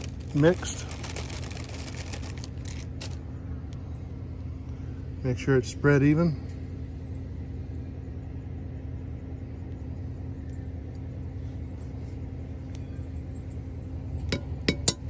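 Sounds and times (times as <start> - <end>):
low motor hum: 0.0 - 15.0
fork tapping cast-iron pot: 14.3 - 15.0.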